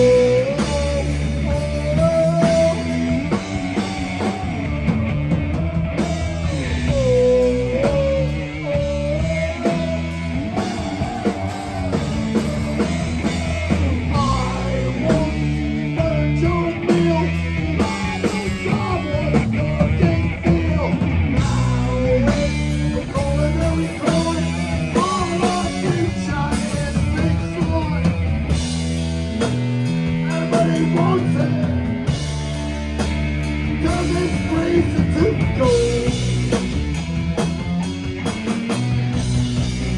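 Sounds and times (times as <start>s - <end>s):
person singing: 0.0s - 28.1s, 33.6s - 36.6s
heavy rock band playing: 0.0s - 39.9s.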